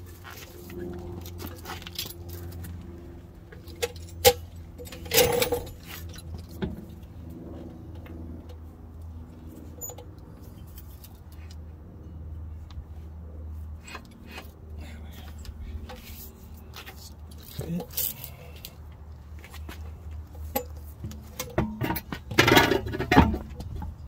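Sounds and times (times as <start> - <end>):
metal rattle: 3.5 - 6.9, 20.4 - 24.0
metal parts clinking: 3.6 - 6.3, 17.3 - 18.7.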